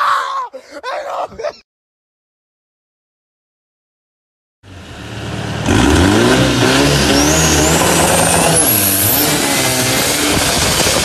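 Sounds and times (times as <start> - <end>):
boat engine revving: 4.7 - 11.0.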